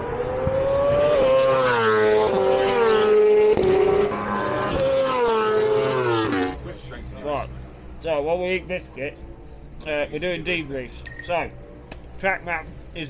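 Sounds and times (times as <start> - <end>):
superbike engines at high revs: 0.0 - 6.8.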